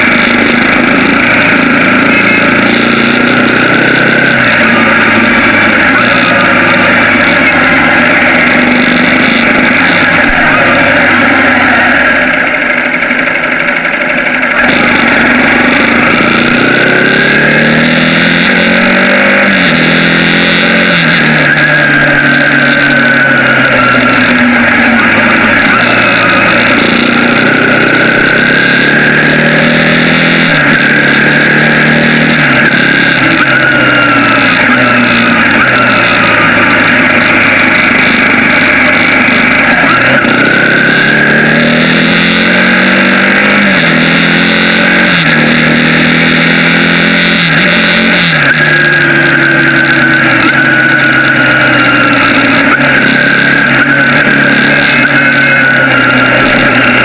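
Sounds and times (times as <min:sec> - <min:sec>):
motorcycle engine revving: 0:00.0 - 0:57.0.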